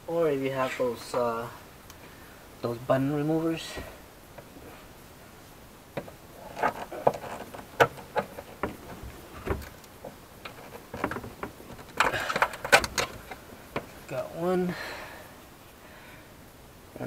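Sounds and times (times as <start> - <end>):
tool prying plastic tabs clicking: 10.4 - 13.9.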